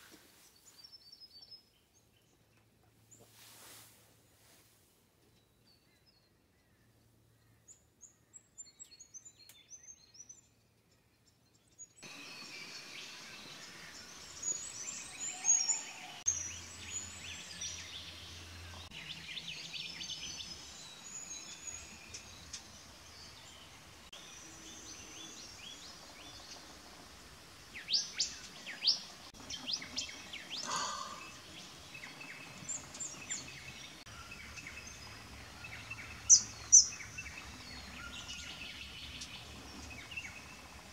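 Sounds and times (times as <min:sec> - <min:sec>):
birds chirping and whistling: 0:11.9 - 0:23.6, 0:27.8 - 0:40.8
loud sharp bird calls: 0:29.9 - 0:31.6.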